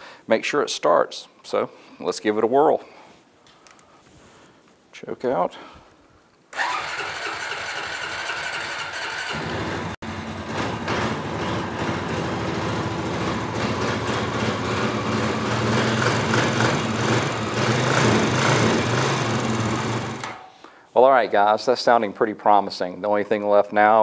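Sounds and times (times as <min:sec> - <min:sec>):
electric starter cranking: 0:06.5 - 0:20.5
engine idling: 0:06.6 - 0:20.2.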